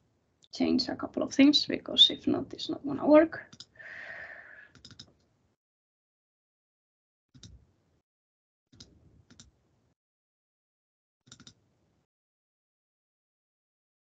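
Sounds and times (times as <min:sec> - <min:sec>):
computer mouse clicking: 0:04.7 - 0:05.2, 0:11.3 - 0:11.6.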